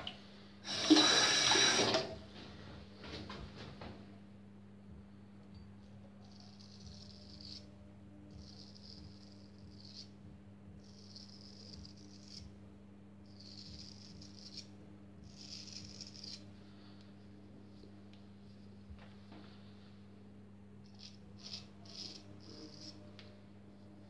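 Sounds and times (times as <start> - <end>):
faint low hum: 0.0 - 24.0
razor scraping stubble: 6.3 - 7.7, 10.8 - 12.5, 13.3 - 16.5, 20.8 - 23.3.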